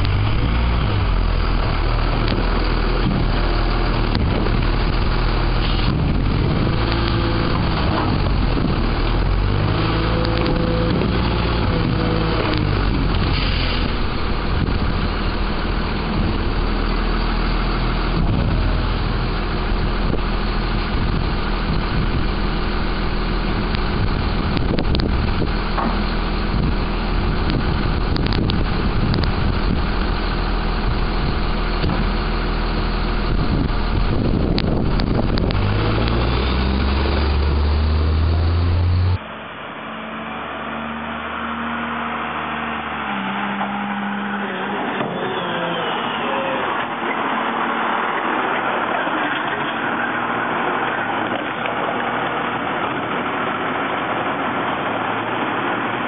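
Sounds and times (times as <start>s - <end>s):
garbage truck engine running: 0.0s - 56.0s
hydraulics working: 0.0s - 56.0s
pitch-shifting whines: 35.2s - 51.3s.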